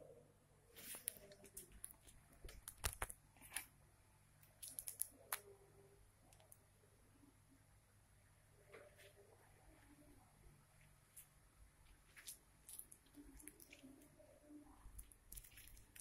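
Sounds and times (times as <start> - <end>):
low steady hum: 0.0 - 16.0
soft handling clicks and rustles: 0.8 - 3.7.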